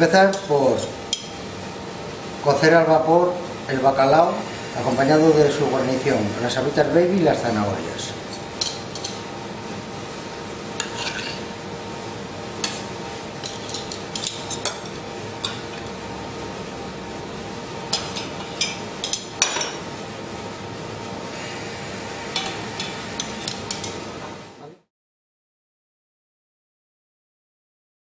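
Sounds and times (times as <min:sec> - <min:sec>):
steady background hum: 0:00.0 - 0:24.9
kitchen utensils clinking: 0:08.3 - 0:09.2, 0:10.8 - 0:11.4, 0:13.4 - 0:15.9, 0:17.9 - 0:19.8, 0:22.3 - 0:24.0.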